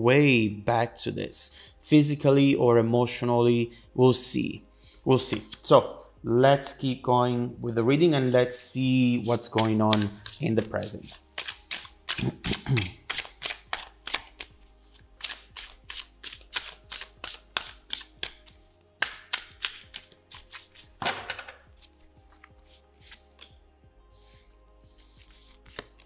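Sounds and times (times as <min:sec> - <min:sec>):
soft background music: 0:00.0 - 0:26.0
cards shuffling: 0:09.2 - 0:23.6, 0:24.2 - 0:26.0.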